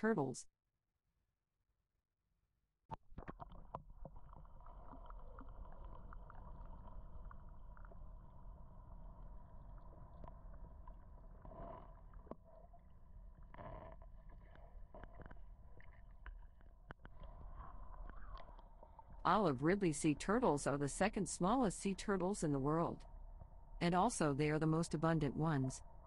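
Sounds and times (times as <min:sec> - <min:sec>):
small underwater clicks: 0:02.9 - 0:08.0, 0:09.8 - 0:19.2
low underwater rumble: 0:03.0 - 0:20.5
rushes of water: 0:03.2 - 0:12.6.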